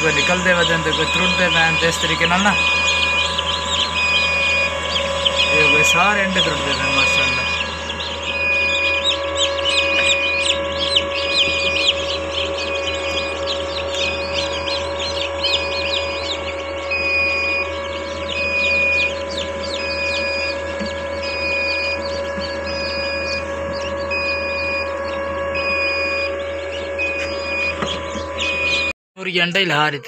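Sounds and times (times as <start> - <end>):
chicks peeping: 0.0 - 28.9
incubator hum: 0.0 - 30.0.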